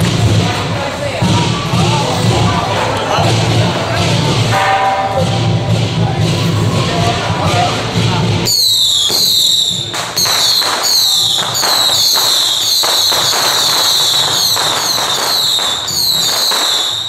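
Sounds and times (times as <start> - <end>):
firecrackers cracking: 0.0 - 17.0
shrill falling whistle: 8.5 - 17.0.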